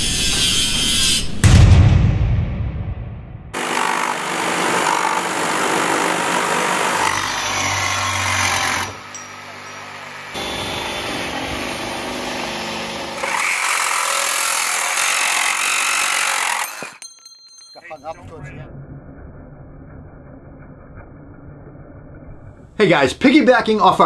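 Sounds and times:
reciprocating saws cutting: 0:03.6 - 0:17.0.

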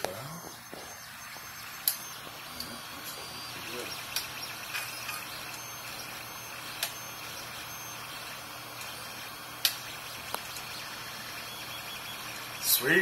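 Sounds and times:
sharp clicks: 0:00.0 - 0:02.8, 0:03.8 - 0:08.0, 0:09.6 - 0:10.8
three d printer humming: 0:00.0 - 0:13.0.

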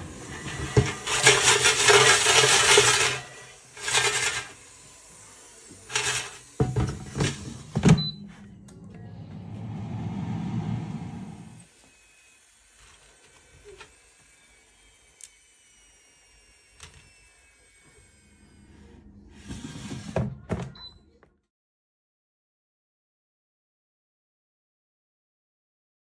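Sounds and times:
air fryer fan humming: 0:00.0 - 0:04.5
fries rattling in fryer basket: 0:00.0 - 0:04.5.

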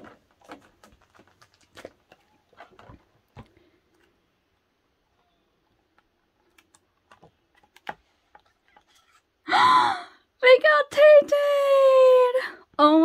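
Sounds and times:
book pages turning: 0:00.0 - 0:04.2, 0:05.9 - 0:09.3.

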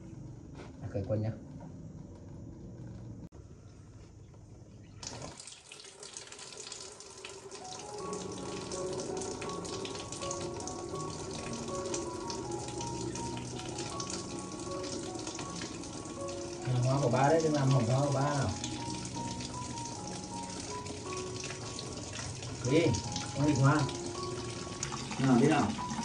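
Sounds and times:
water running from a tap: 0:05.0 - 0:26.0
light background music: 0:07.3 - 0:26.0.

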